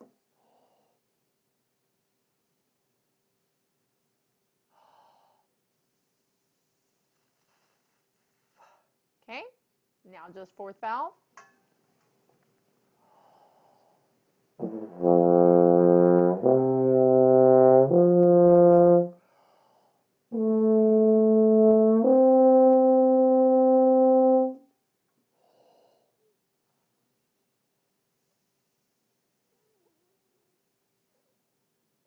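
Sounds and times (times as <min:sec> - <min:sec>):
brass instrument slurred notes: 0:14.6 - 0:19.2, 0:20.3 - 0:24.6.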